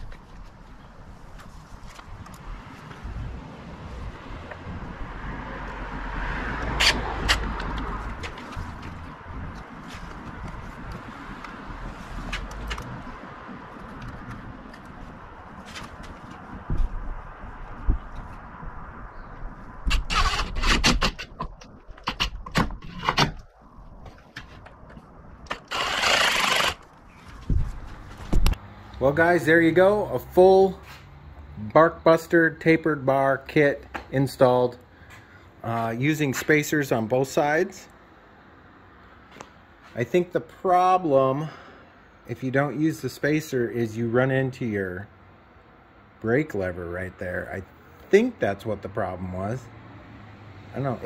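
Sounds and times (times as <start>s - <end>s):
cordless driver running: 25.5s - 26.9s.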